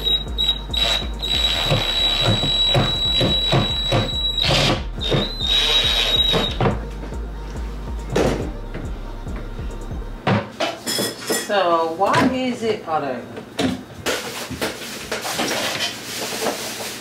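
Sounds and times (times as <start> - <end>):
cordless drill motor whine: 0.0 - 6.6
background music with steady beat: 0.0 - 10.6.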